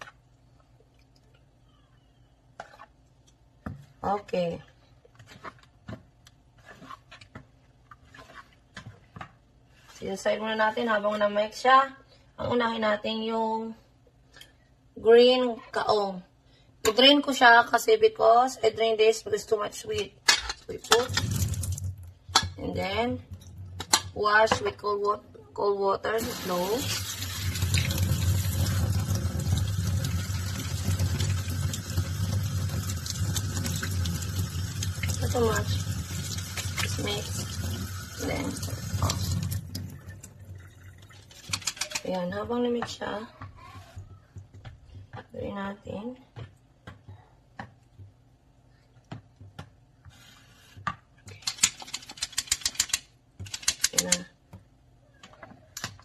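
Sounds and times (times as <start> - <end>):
metal colander rattling: 20.4 - 22.6
faucet sprayer running: 26.2 - 39.8.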